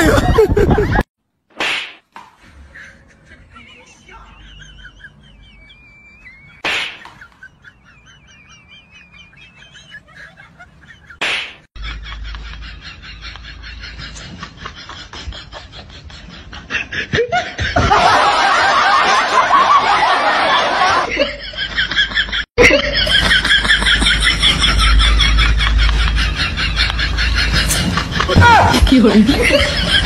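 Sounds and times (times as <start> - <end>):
laughter: 0.0 - 1.1, 2.4 - 30.0.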